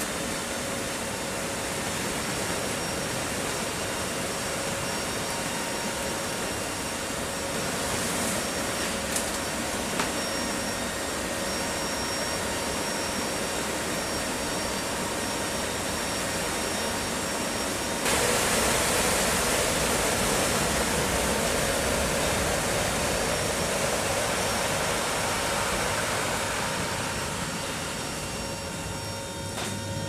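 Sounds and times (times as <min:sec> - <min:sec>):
turboprop engines droning: 0:00.0 - 0:30.0
rushing wind: 0:18.0 - 0:30.0.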